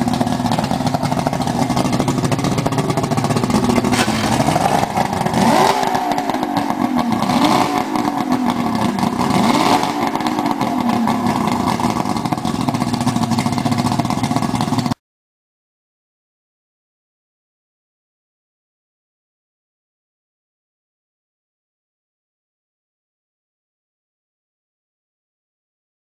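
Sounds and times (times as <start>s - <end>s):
outboard motor revving: 0.0s - 15.0s.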